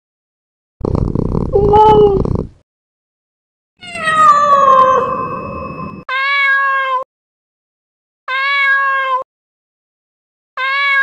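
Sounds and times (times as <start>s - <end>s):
cat meowing: 3.8s - 5.1s, 6.1s - 7.0s, 8.3s - 9.3s, 10.6s - 11.0s.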